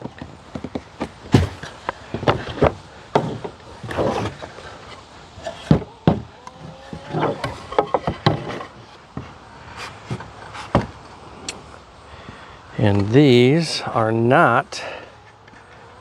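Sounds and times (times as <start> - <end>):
wooden boards knocking: 5.6 - 6.3, 7.0 - 9.3.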